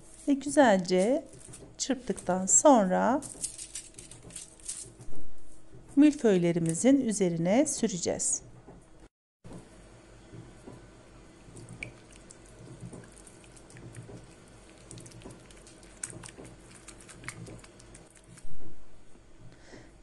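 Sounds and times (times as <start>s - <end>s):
brush beating egg yolk: 11.6s - 18.4s.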